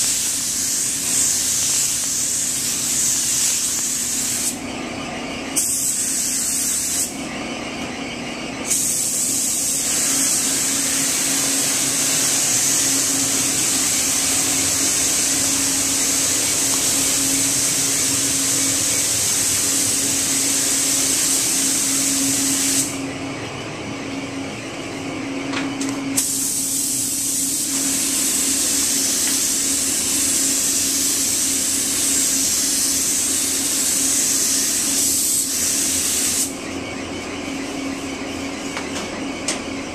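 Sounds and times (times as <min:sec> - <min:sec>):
paint spray gun hissing: 0:00.0 - 0:04.6, 0:05.6 - 0:07.2, 0:08.6 - 0:23.0, 0:26.2 - 0:36.6
steady low hum: 0:00.0 - 0:39.9.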